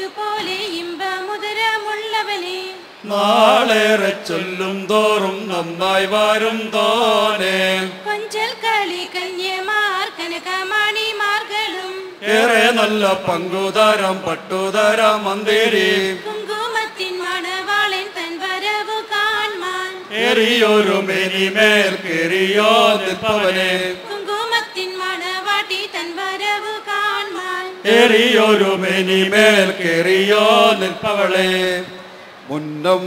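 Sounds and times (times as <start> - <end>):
group chanting a song in unison: 3.0 - 8.2, 12.2 - 16.6, 20.0 - 24.4, 27.8 - 32.2.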